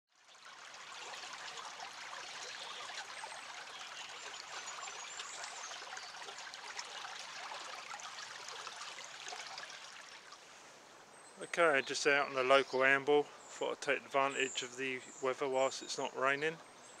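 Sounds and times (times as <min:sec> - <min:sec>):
stream trickling over gravel: 0:00.1 - 0:10.6.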